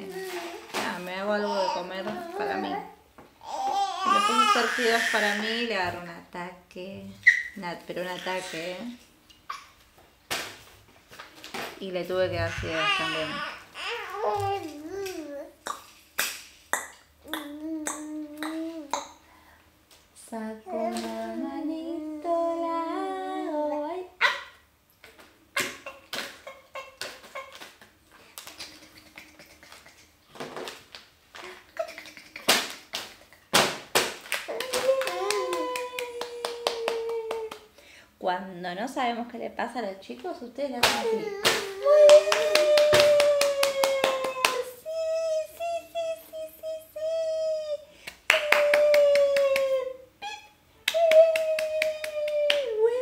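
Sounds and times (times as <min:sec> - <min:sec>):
sharp hand claps: 0:15.7 - 0:17.5, 0:32.0 - 0:37.6, 0:40.8 - 0:44.6.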